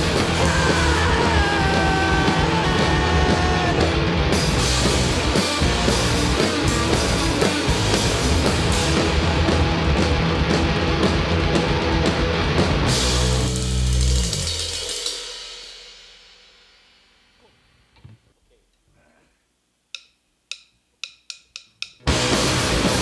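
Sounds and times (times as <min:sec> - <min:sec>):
electric guitars: 0:00.0 - 0:14.8, 0:22.0 - 0:23.0
electric bass: 0:00.0 - 0:14.9, 0:22.0 - 0:23.0
drum kits: 0:00.0 - 0:17.9, 0:19.8 - 0:23.0.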